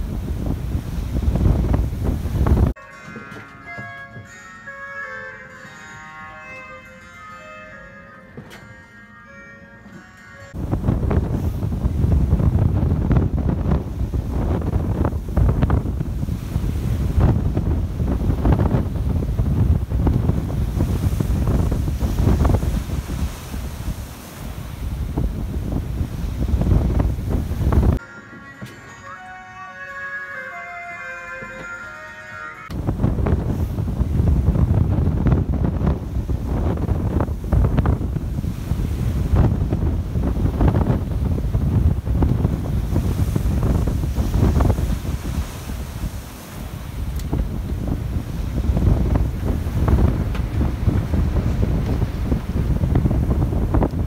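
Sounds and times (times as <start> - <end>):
wind buffeting microphone: 0.0 - 2.8, 10.5 - 28.0, 32.7 - 54.0
breaking seas rushing: 0.0 - 54.0.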